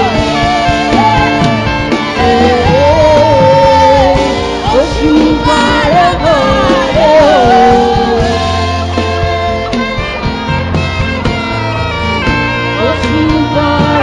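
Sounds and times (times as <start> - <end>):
person singing long held notes: 0.0 - 9.8, 12.8 - 14.0
steady music backing: 0.0 - 14.0.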